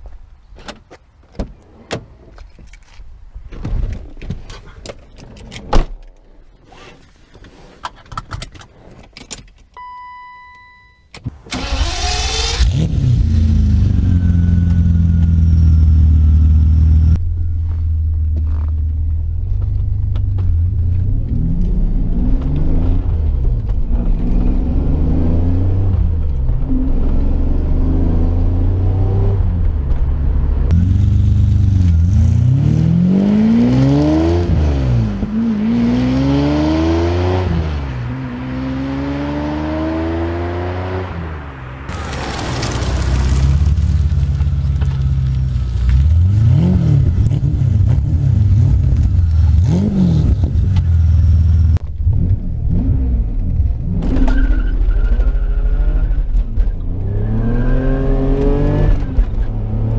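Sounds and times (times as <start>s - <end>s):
car engine starting and revving: 11.4s - 17.2s, 19.5s - 59.9s.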